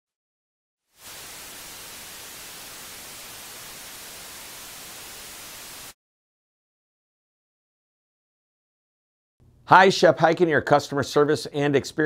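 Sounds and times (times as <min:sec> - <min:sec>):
television static hiss: 0:01.0 - 0:05.9.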